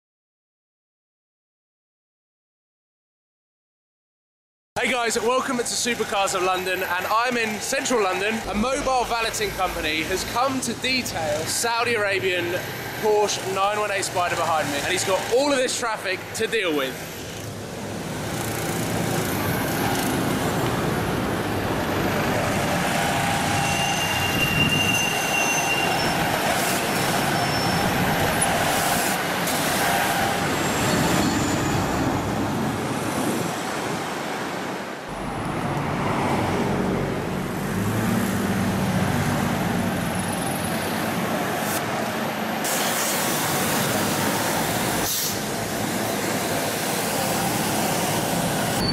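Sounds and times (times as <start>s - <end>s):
vehicles passing and idling: 4.9s - 48.9s
high squeal: 23.1s - 28.5s, 29.8s - 32.2s, 48.6s - 48.9s.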